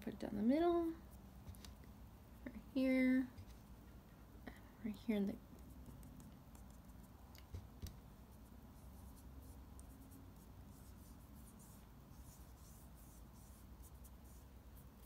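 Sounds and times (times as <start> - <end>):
fingertips rubbing skin: 5.4 - 7.7, 8.3 - 15.0.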